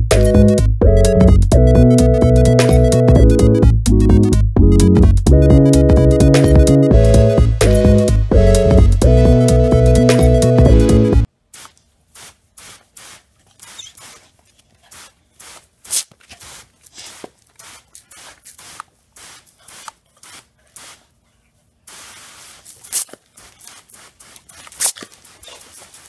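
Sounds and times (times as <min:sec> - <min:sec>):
hose water spraying on ground: 0:11.5 - 0:21.1, 0:21.9 - 0:26.0.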